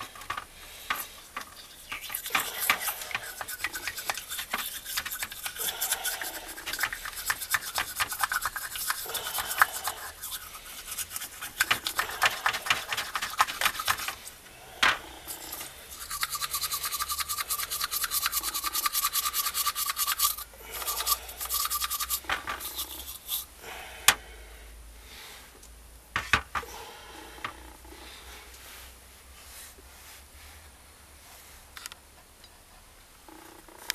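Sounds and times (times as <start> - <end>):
hand tool scraping soot: 1.7 - 14.3.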